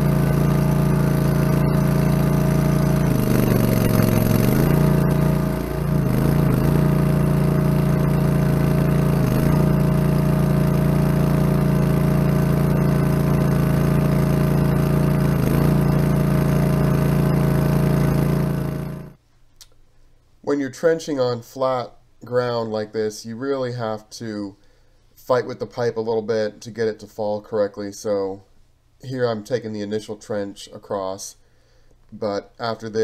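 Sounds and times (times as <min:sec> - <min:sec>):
trencher engine running: 0:00.0 - 0:19.2.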